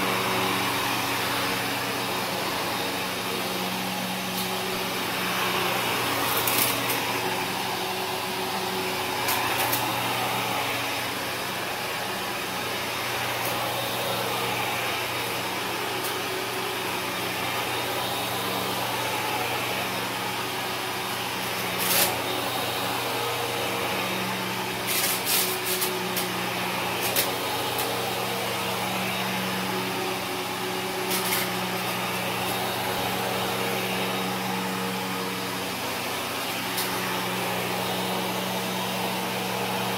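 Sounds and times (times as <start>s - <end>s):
vacuum cleaner running on carpet: 0.0s - 39.9s
debris crackling in vacuum nozzle: 6.1s - 7.4s, 24.7s - 26.4s, 27.0s - 28.1s, 30.9s - 33.8s.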